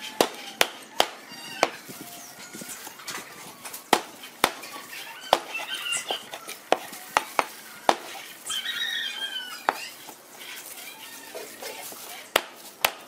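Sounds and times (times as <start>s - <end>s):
cleaver chopping on wooden board: 0.2s - 1.8s, 3.9s - 4.7s, 5.3s - 5.6s, 6.7s - 8.2s, 12.3s - 13.0s.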